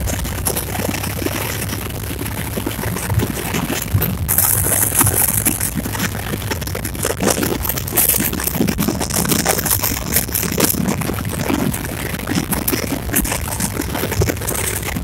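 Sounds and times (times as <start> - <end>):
knocks and rattles: 0.0 - 10.8
train wheels rumbling on track: 0.0 - 15.0
wind rushing past microphone: 0.0 - 15.0.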